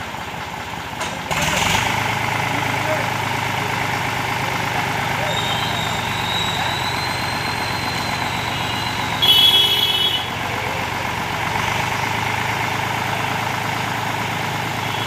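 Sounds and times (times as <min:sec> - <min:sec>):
tractor diesel engine running: 0:00.0 - 0:15.0
shrill high tones: 0:05.2 - 0:09.6.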